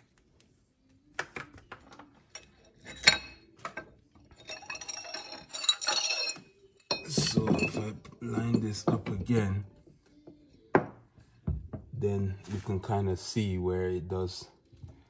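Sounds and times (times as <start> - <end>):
mosaic tiles clinking: 2.4 - 9.4
tiles knocking on countertop: 10.7 - 11.9.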